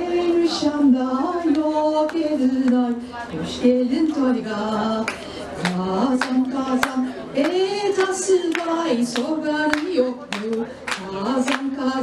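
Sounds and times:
woman singing into a microphone: 0.0s - 12.0s
sharp hand claps: 5.1s - 11.7s.

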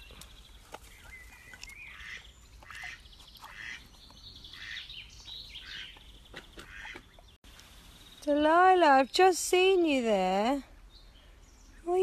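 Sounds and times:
ducks quacking: 1.9s - 3.9s, 4.5s - 4.9s, 6.6s - 7.0s.

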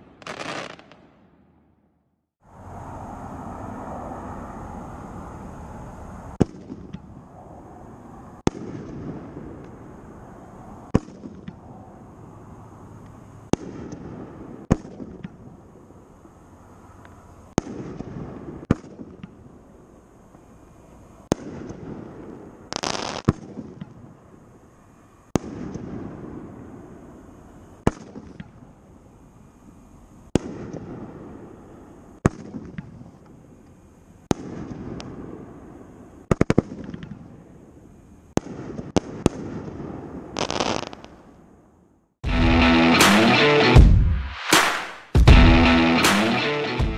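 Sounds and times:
firework bangs: 0.0s - 1.5s, 8.4s - 9.8s, 13.5s - 15.6s, 17.5s - 19.4s, 21.2s - 24.5s, 25.3s - 27.0s, 27.8s - 28.7s, 30.3s - 31.6s, 34.2s - 37.4s, 38.3s - 41.3s, 44.3s - 45.2s
loud hiss: 42.9s - 45.3s.

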